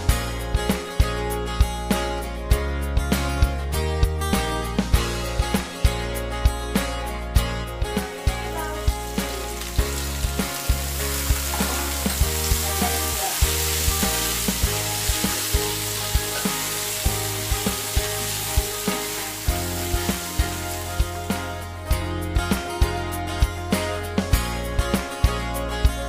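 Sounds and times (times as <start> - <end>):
food sizzling in a frying pan: 8.3 - 21.7.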